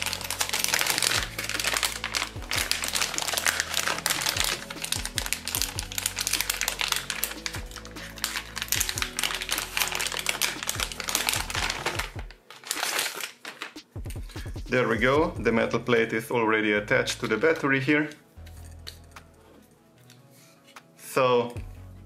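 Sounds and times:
plastic bag crinkling: 0:00.0 - 0:13.9
background music: 0:00.0 - 0:22.0.

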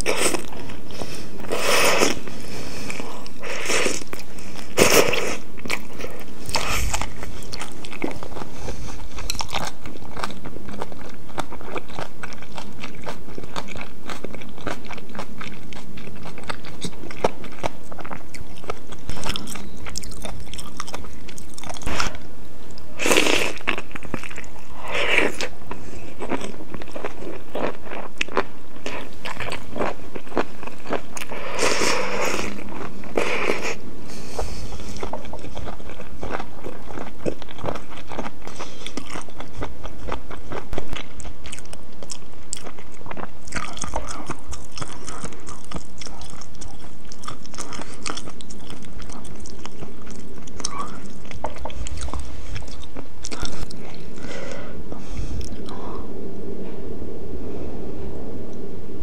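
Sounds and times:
slurping noodles: 0:00.0 - 0:09.3.

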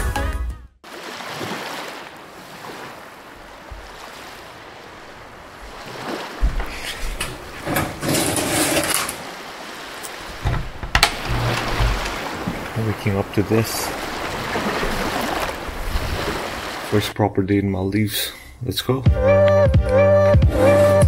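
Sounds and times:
wind and sea: 0:00.8 - 0:19.0.

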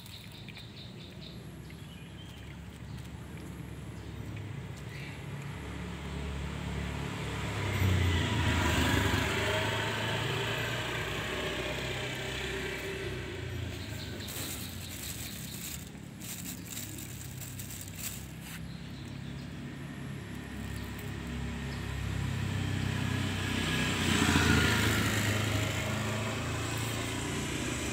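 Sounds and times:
vehicle engine running: 0:01.4 - 0:27.9
plastic bag crinkling: 0:12.6 - 0:18.7.

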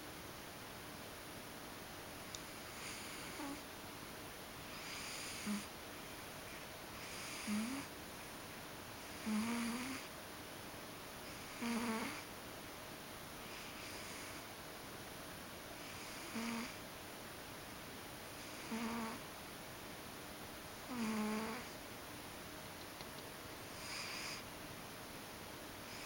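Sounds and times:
cat snoring: 0:02.6 - 0:03.6, 0:04.7 - 0:05.7, 0:07.0 - 0:07.9, 0:09.0 - 0:10.1, 0:11.3 - 0:12.3, 0:13.4 - 0:14.4, 0:15.8 - 0:16.8, 0:18.4 - 0:19.2, 0:20.9 - 0:21.8, 0:23.7 - 0:24.4.

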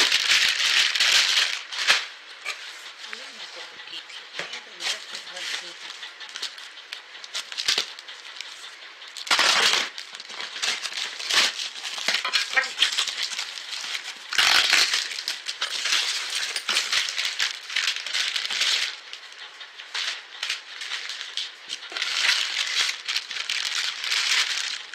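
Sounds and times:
plastic wrapping and tape ripping: 0:00.0 - 0:02.6, 0:07.3 - 0:08.5, 0:09.2 - 0:19.0, 0:20.0 - 0:24.9
packaging crinkling: 0:00.0 - 0:03.2, 0:04.9 - 0:24.9
cardboard tearing: 0:09.2 - 0:16.1.

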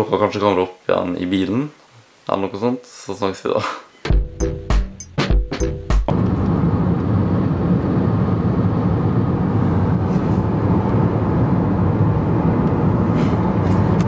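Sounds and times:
music with heavy beats: 0:04.1 - 0:06.1
car road and engine noise: 0:06.1 - 0:14.0.

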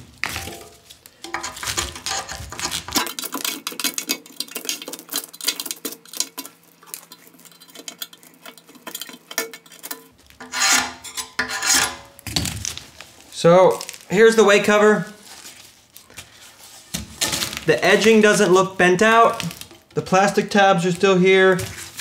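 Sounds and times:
scraper rasping on metal: 0:01.4 - 0:03.0, 0:10.4 - 0:12.0.

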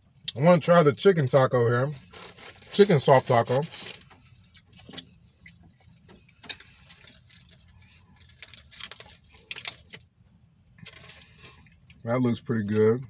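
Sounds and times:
aluminium foil crinkling: 0:01.8 - 0:10.0, 0:10.8 - 0:12.0.

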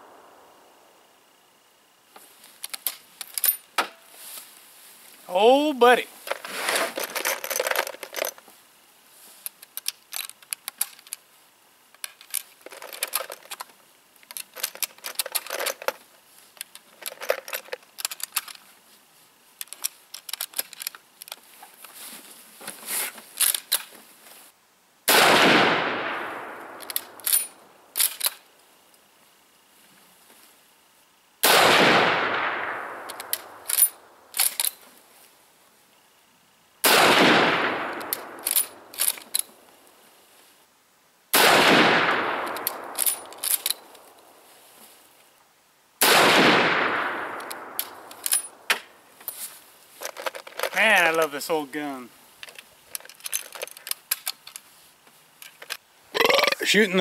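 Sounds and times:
rifle handling clicks and rattles: 0:02.2 - 0:04.0, 0:06.2 - 0:08.4, 0:09.4 - 0:11.3, 0:11.9 - 0:18.8, 0:19.6 - 0:24.0, 0:26.3 - 0:28.5, 0:32.3 - 0:34.9, 0:37.6 - 0:39.7, 0:42.0 - 0:44.3, 0:46.7 - 0:56.5
rifle shots with echo: 0:25.1 - 0:27.2, 0:31.4 - 0:33.6, 0:36.8 - 0:38.9, 0:41.4 - 0:43.4, 0:46.0 - 0:48.6
rifle bolt clicks: 0:26.6 - 0:27.4, 0:32.6 - 0:34.7, 0:37.8 - 0:39.5, 0:42.3 - 0:44.0, 0:46.8 - 0:48.8.

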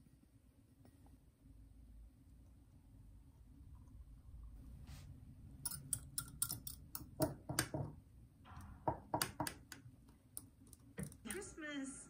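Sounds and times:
wire whisk clinking against glass jar: 0:05.6 - 0:06.8.

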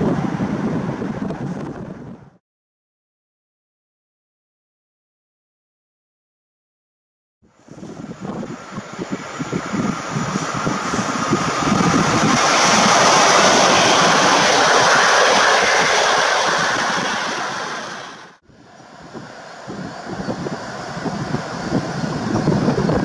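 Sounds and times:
train wheels rumbling and rushing: 0:07.6 - 0:23.0.

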